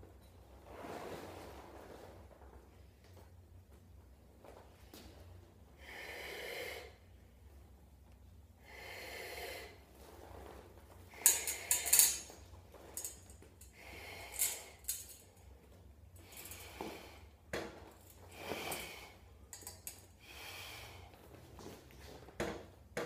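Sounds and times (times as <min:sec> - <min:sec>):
man breathing heavily: 0:05.7 - 0:07.2, 0:08.6 - 0:10.0, 0:13.0 - 0:15.5, 0:16.2 - 0:21.8.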